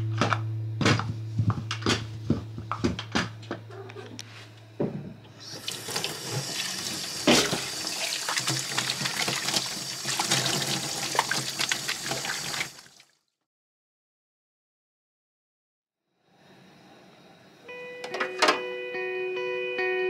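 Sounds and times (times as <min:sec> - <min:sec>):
tap running into metal sink: 0:05.6 - 0:11.4
dishes clinking against sink: 0:07.2 - 0:07.8.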